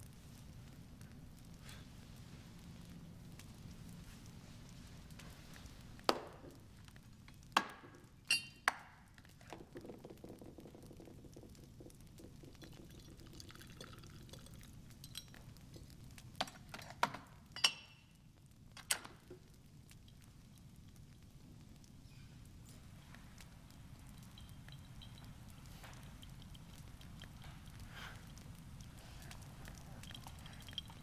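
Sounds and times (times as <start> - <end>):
glass and ice clinking: 8.3 - 8.7, 9.6 - 15.4, 17.6 - 18.1, 24.2 - 25.4, 30.0 - 31.0
liquor pouring over ice: 9.4 - 15.5, 29.9 - 31.0.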